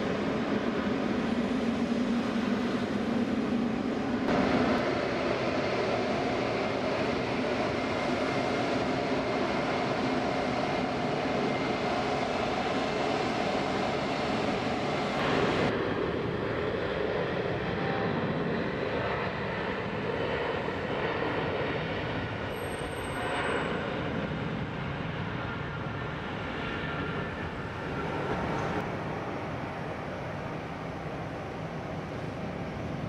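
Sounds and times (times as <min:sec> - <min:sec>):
jet engines at takeoff thrust: 0:00.0 - 0:33.0.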